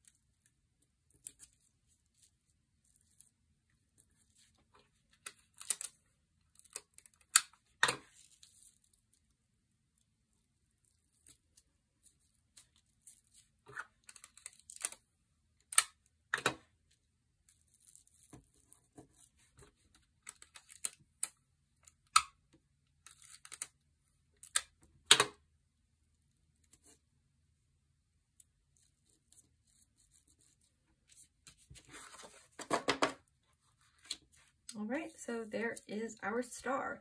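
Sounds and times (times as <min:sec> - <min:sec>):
tape and paper rustling: 0:28.8 - 0:33.0.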